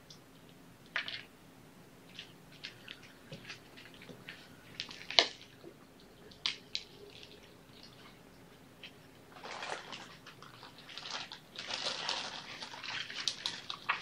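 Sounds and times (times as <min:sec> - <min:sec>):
kittens rustling and tapping toys: 0:02.1 - 0:08.2.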